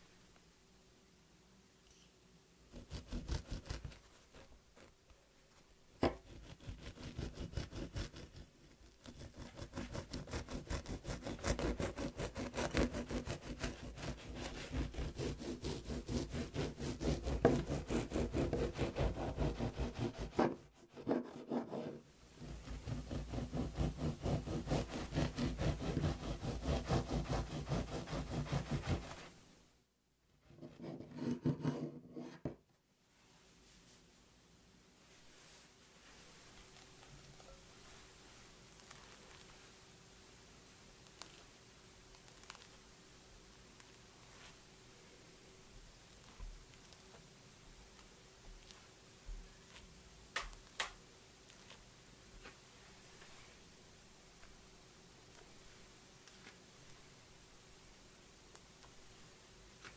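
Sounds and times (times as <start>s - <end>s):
bread knife sawing through crusts: 6.2s - 29.2s.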